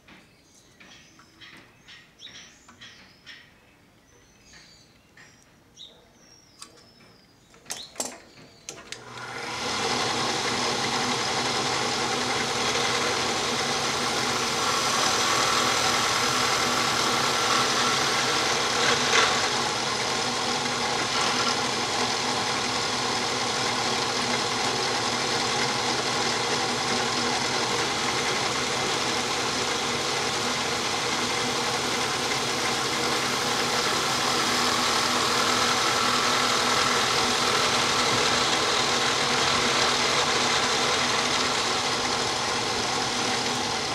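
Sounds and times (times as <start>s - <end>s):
clicks: 6.6s - 9.3s
drill motor whining: 8.7s - 43.9s.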